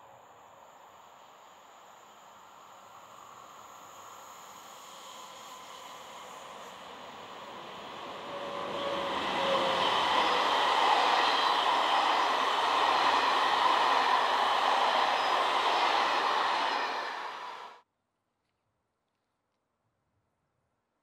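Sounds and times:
passenger train passing at speed: 0.0 - 17.8
rush of wheels on rail: 2.0 - 17.8.

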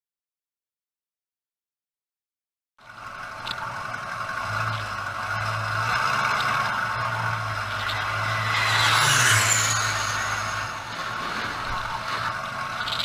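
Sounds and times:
vehicle engine humming: 2.8 - 13.0
broad rushing noise: 5.2 - 13.0.

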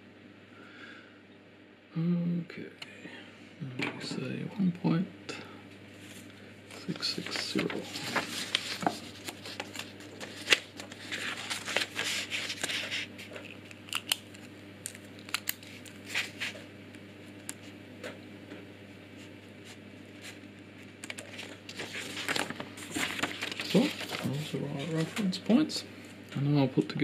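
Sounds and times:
paper rustling: 6.0 - 16.6, 19.2 - 25.6.

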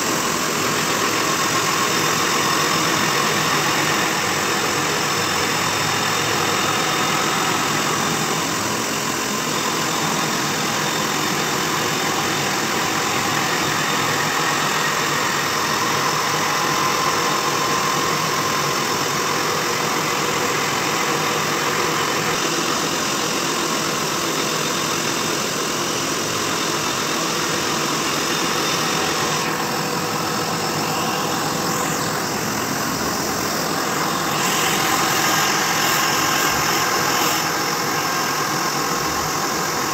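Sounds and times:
grinder motor and lathe running: 0.0 - 39.9
grinder grinding metal: 28.1 - 39.8.

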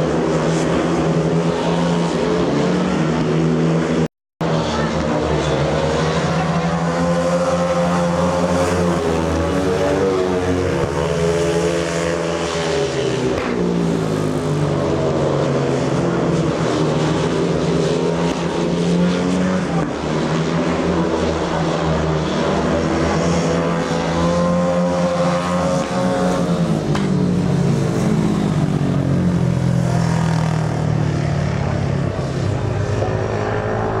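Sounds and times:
motorcycle engines revving: 0.0 - 34.0.

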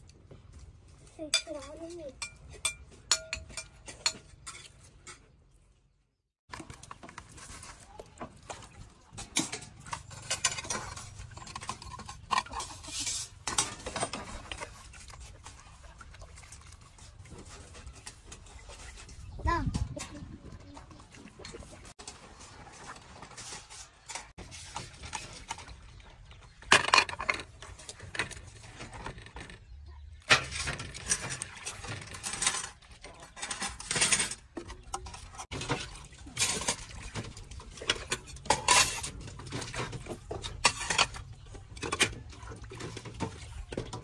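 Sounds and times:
dishes clinking and clattering: 1.3 - 5.4, 8.4 - 15.6, 23.4 - 29.6, 30.2 - 44.0.

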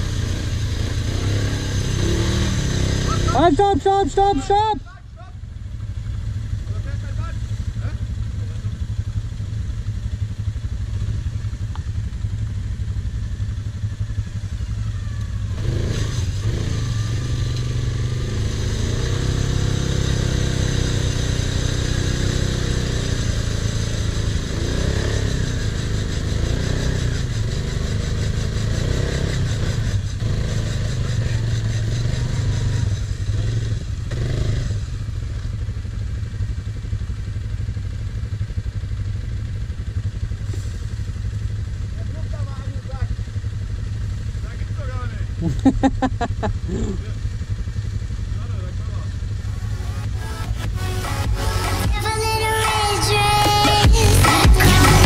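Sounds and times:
quad engine revving in mud: 0.0 - 4.7, 14.3 - 35.2, 42.1 - 47.7, 52.6 - 55.0
quad engine idling: 0.0 - 55.0.

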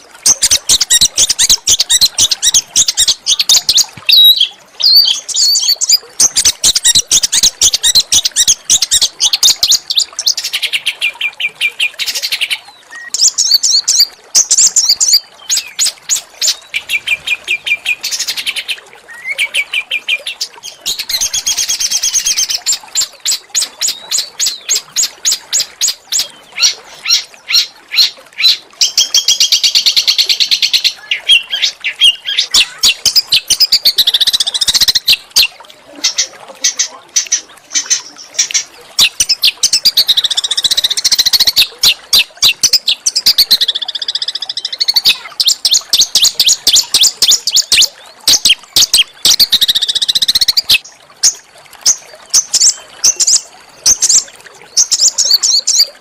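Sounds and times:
songbird singing harsh notes: 0.3 - 10.2.

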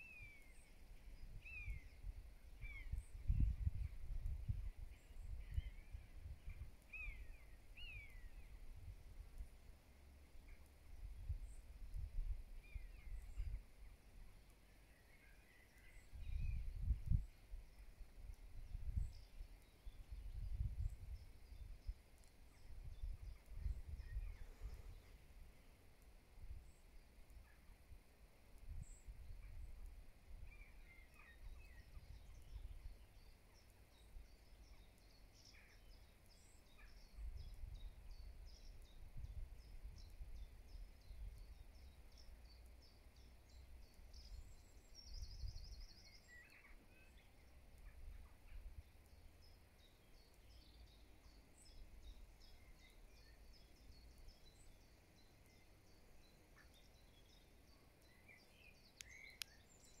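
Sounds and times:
small birds chirping: 0.0 - 60.0
wind buffeting microphone: 1.2 - 6.7, 16.1 - 17.3, 18.5 - 21.9, 22.6 - 24.9.

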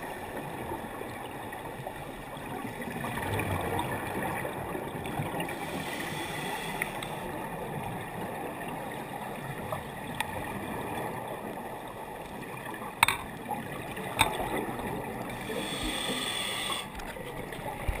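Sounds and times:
muffled underwater rush of water: 0.0 - 18.0.

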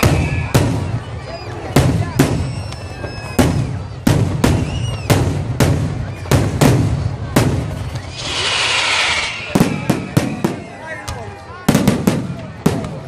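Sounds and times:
firework shells bursting: 7.9 - 10.5
loud hiss: 8.0 - 10.5.

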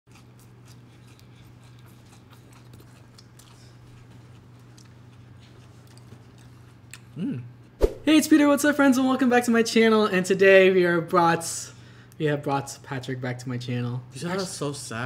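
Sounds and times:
person vocalizing: 7.2 - 7.5.

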